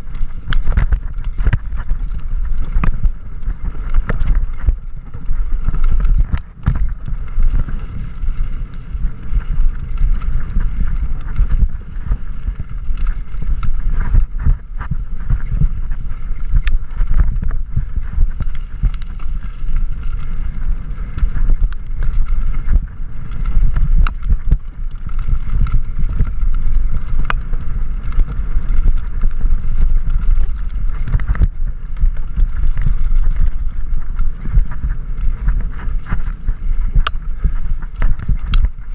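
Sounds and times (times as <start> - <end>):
bike clicking and rattling: 0.0 - 38.9
wind rushing over microphone: 0.0 - 38.9.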